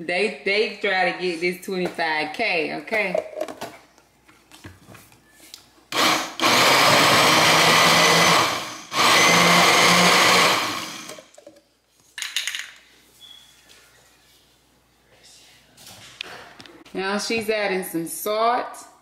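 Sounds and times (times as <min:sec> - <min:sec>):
blender motor running: 0:05.9 - 0:11.3.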